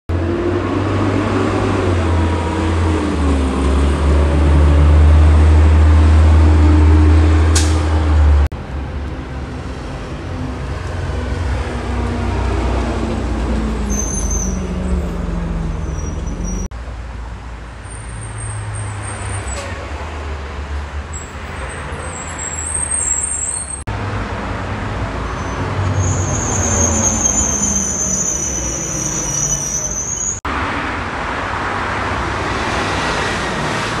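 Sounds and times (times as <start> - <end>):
garbage truck diesel engine: 0.1 - 16.7
passing engine: 0.1 - 16.7, 30.4 - 34.0
road traffic: 0.1 - 34.0
brief high squeals: 13.8 - 15.0, 21.2 - 23.8, 25.3 - 30.4.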